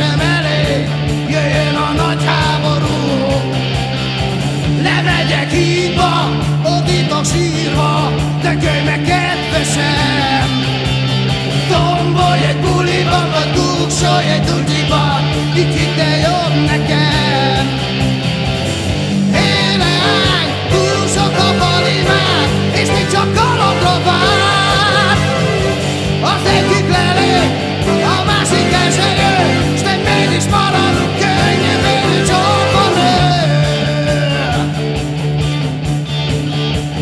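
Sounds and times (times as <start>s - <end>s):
bass notes: 0.0s - 37.0s
rock guitar: 0.0s - 37.0s
drum beat: 19.4s - 33.4s.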